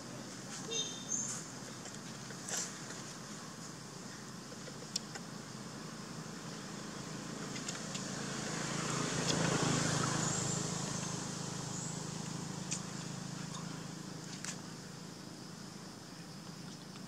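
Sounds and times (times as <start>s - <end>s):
distant vehicle engine passing: 6.3s - 14.2s.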